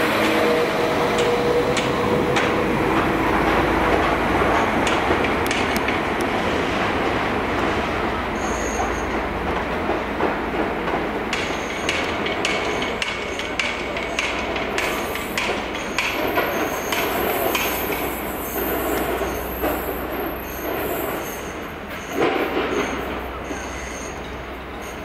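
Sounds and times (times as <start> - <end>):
train engine rumbling low: 0.0 - 25.0
train wheels clicking over joints: 0.0 - 25.0.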